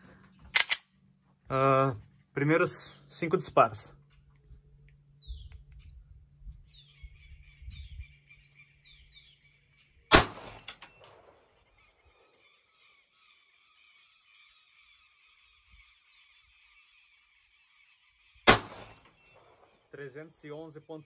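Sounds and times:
birds chirping: 0:00.0 - 0:21.0
bird trilling: 0:03.9 - 0:19.7
pistol shot: 0:10.1 - 0:11.4, 0:18.5 - 0:19.8.

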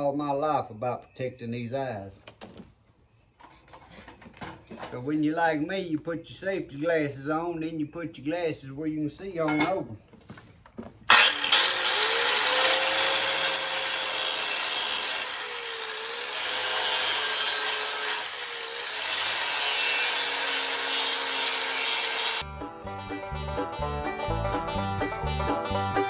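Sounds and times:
angle grinder grinding steel: 0:11.1 - 0:22.4.

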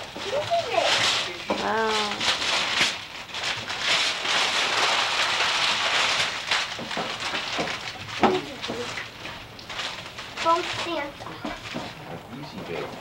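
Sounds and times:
wrapping paper rustling and tearing: 0:00.0 - 0:13.0.

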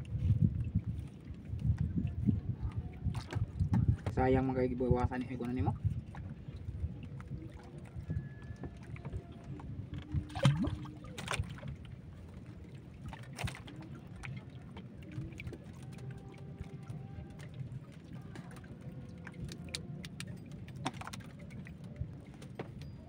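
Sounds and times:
low background rumble: 0:00.0 - 0:23.0
fishing tackle knocks and rustles: 0:13.0 - 0:23.0.

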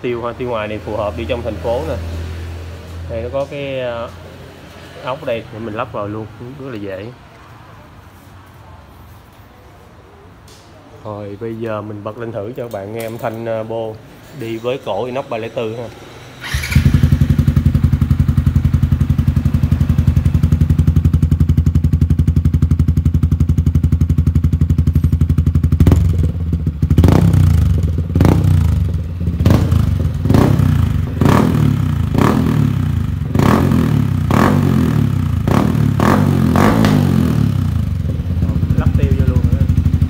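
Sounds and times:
motorcycle engine idling: 0:16.4 - 0:36.1, 0:37.2 - 0:40.0.

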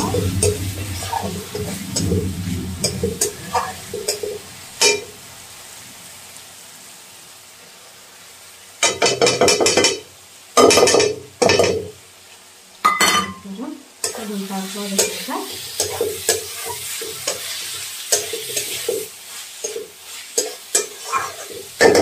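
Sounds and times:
metal spatula scraping pan: 0:00.0 - 0:05.2, 0:14.9 - 0:22.0
frying sizzle: 0:00.0 - 0:22.0
prawns sizzling loudly in pan: 0:00.0 - 0:22.0.

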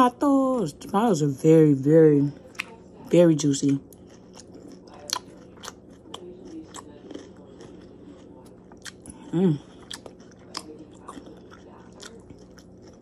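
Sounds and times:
crunchy chewing: 0:02.4 - 0:13.0
person humming mm: 0:09.2 - 0:09.7.

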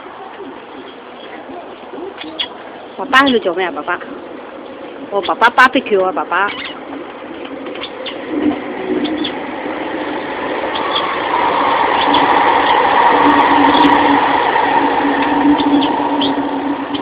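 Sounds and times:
engine humming: 0:00.0 - 0:17.0
bird chirps: 0:06.4 - 0:06.8, 0:07.7 - 0:08.3, 0:08.9 - 0:09.4, 0:15.6 - 0:17.0.

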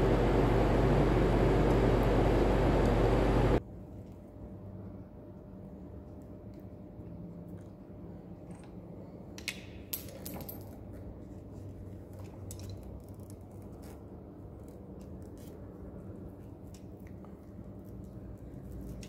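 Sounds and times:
steady low hum: 0:00.0 - 0:09.9.

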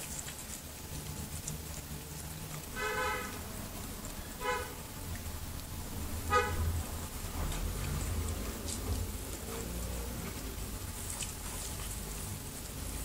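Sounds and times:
horn toots: 0:02.7 - 0:03.5, 0:04.4 - 0:04.9, 0:06.2 - 0:06.8.

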